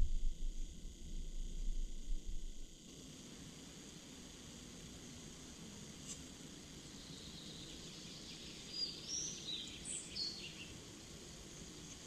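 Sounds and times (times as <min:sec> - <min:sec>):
faint woodland hiss: 0:02.8 - 0:12.0
small bird chirping: 0:06.9 - 0:10.8.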